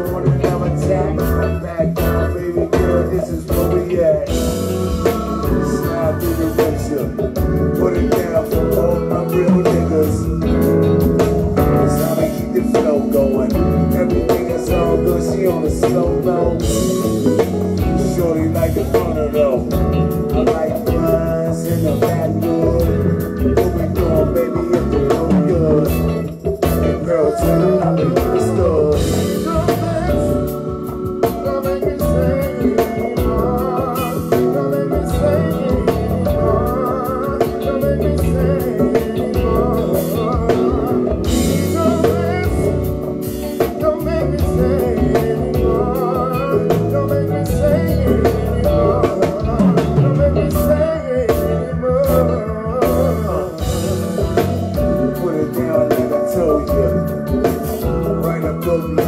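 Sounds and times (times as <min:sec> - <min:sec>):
drum kit: 0:00.0 - 0:59.0
electric guitar: 0:00.0 - 0:59.0.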